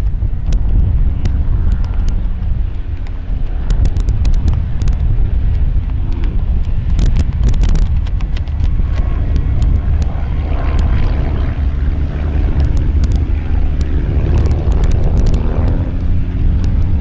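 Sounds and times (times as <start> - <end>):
wind on microphone: 0.0 - 17.0
sharp clicks: 12.4 - 17.0.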